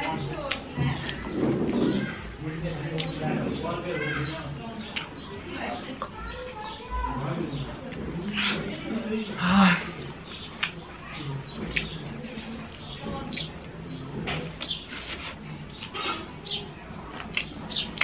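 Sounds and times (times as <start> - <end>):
chewing and lip-smacking: 0.0 - 1.9, 2.9 - 3.3, 4.8 - 5.2, 10.0 - 11.0, 11.6 - 12.7, 17.0 - 18.0.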